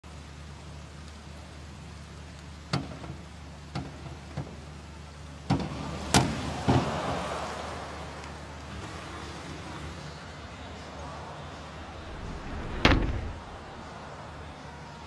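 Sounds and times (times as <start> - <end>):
diving springboard knocking: 12.0 - 13.9.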